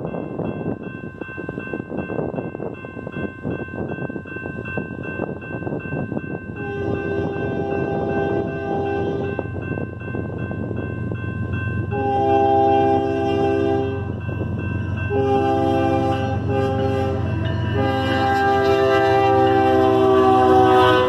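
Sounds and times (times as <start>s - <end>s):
crossing bell ringing: 0.0s - 21.0s
train rumble: 0.0s - 21.0s
locomotive air horn blasts: 6.6s - 9.4s, 11.9s - 14.1s, 15.1s - 21.0s.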